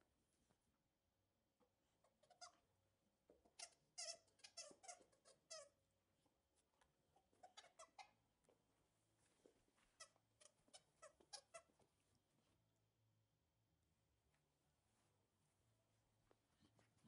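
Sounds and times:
plastic toy squeaker squeaking: 3.6 - 5.7, 7.4 - 8.2, 10.0 - 11.7.

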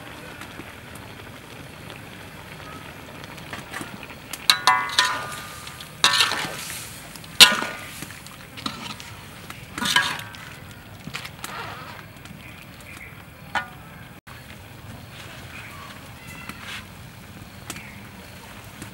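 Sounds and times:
frying sizzle: 0.0 - 18.9
metal spatula clanging on wok: 4.5 - 6.7, 7.4 - 7.9, 9.8 - 10.6, 13.6 - 13.9.

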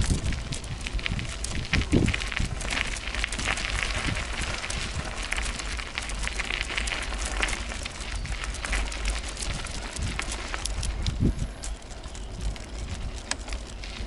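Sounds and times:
bicycle tyres crackling on rough path: 0.0 - 14.0
wicker basket rattling: 0.0 - 14.0
wind on microphone: 0.0 - 14.0.

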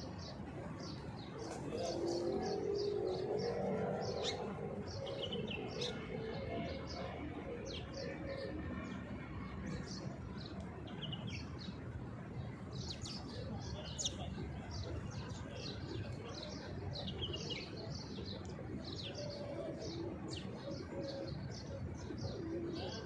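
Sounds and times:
small birds chirping: 0.0 - 7.0
low steady drone: 1.4 - 9.5.

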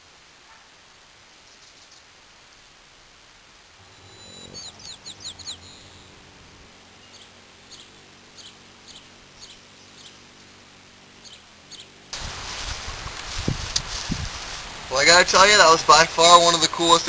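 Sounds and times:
hummingbird wings humming: 1.3 - 14.9
hummingbird sharp chirps: 3.8 - 12.1.

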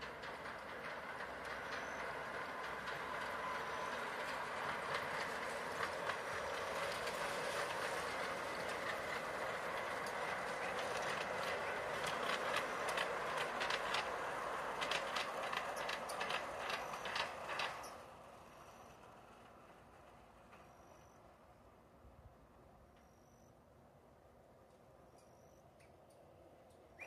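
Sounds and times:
wheels clicking over rail joints: 0.0 - 21.4
model train rumbling along track: 0.0 - 27.0.

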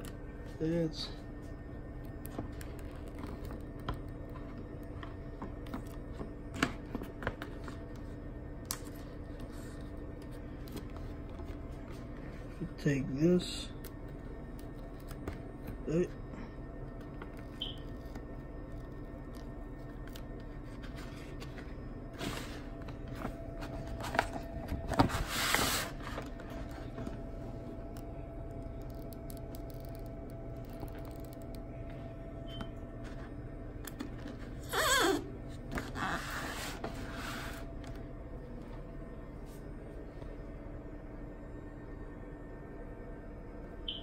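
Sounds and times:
steady low hum: 0.0 - 44.0
vinyl decals peeling: 16.9 - 31.8.

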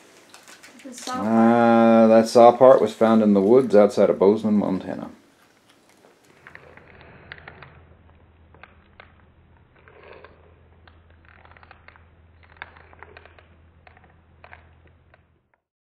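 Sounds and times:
low steady hum: 0.0 - 15.5
soft handling clicks and crinkles: 0.1 - 1.2, 4.8 - 15.4.

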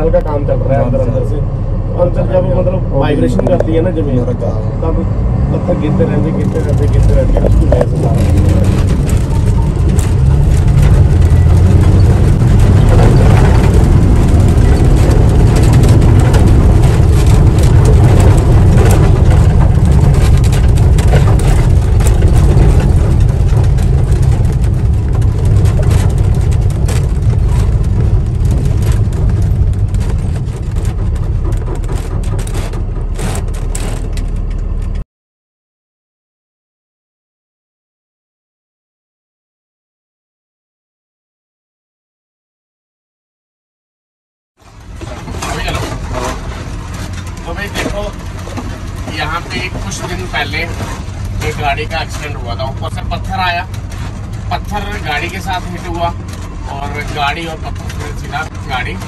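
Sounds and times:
truck engine running: 5.5 - 35.0, 44.6 - 59.0
clicks and rattles: 6.9 - 35.0.

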